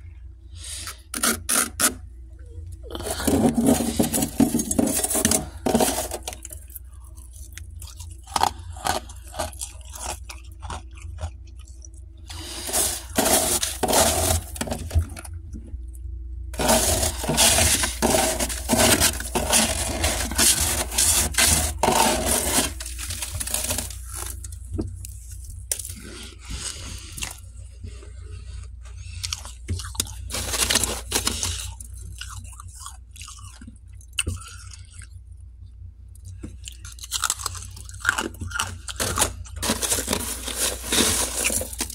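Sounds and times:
metal spatula scraping frost: 2.9s - 6.5s, 12.3s - 15.0s, 16.6s - 24.4s, 39.0s - 41.9s.

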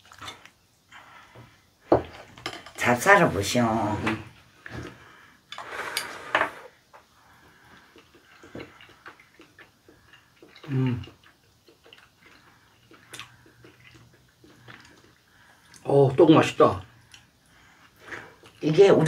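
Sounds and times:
soft chewing: 6.9s - 16.2s, 16.8s - 18.9s.

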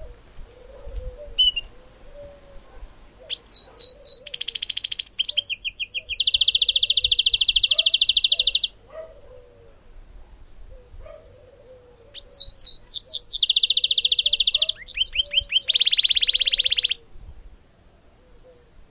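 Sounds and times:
caged bird singing trills: 1.2s - 2.5s, 3.2s - 8.8s, 11.6s - 17.0s.

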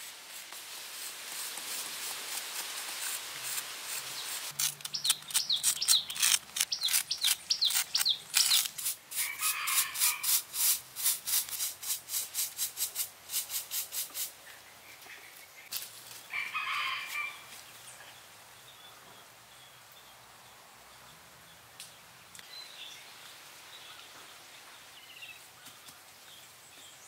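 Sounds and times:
brush scratching on cement: 0.0s - 14.4s
small birds chirping: 4.1s - 10.2s
rooster crowing: 9.2s - 10.4s, 16.3s - 17.5s.

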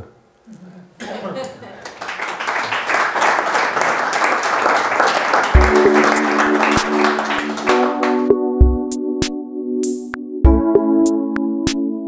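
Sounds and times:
audience applauding: 1.7s - 8.3s
music with chords and drum hits: 5.6s - 12.0s.

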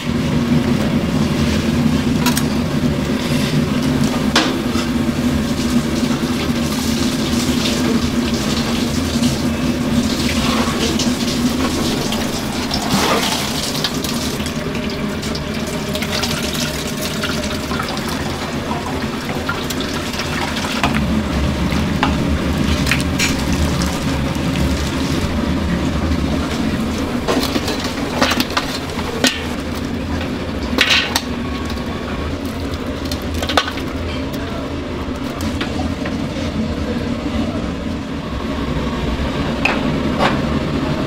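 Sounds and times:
broth dripping into pot: 4.3s - 25.4s
steady low drone: 7.8s - 41.0s.

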